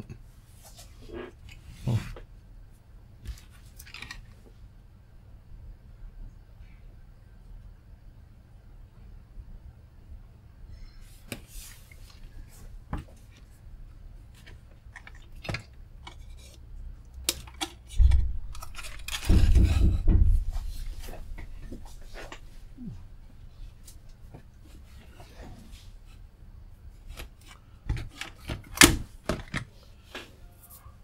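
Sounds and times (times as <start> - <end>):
heavy bumps: 18.0 - 23.0.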